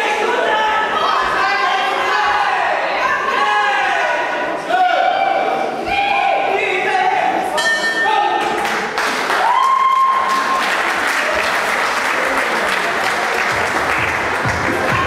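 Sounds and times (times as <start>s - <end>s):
audience applauding and cheering: 8.6s - 15.0s.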